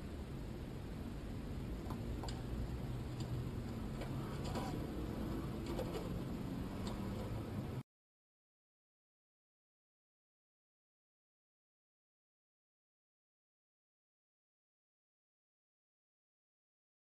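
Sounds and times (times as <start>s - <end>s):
car engine rumble: 0.0s - 7.8s
road noise inside car: 0.0s - 7.8s.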